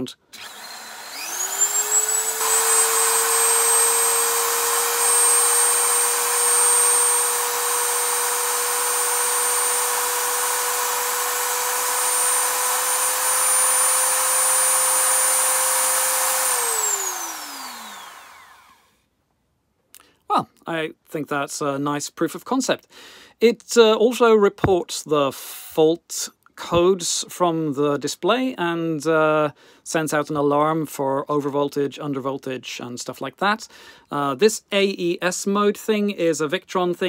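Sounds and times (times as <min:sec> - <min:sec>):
rotary tool high whine: 0:00.3 - 0:18.9.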